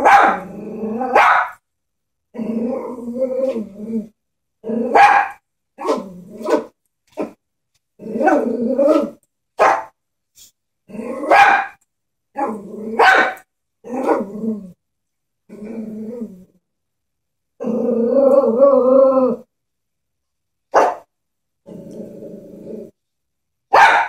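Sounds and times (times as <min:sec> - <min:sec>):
small dog growling and barking: 0:00.0 - 0:01.6, 0:02.3 - 0:07.4, 0:08.0 - 0:09.8, 0:10.9 - 0:14.8, 0:15.5 - 0:16.6, 0:17.6 - 0:19.5, 0:21.6 - 0:23.0.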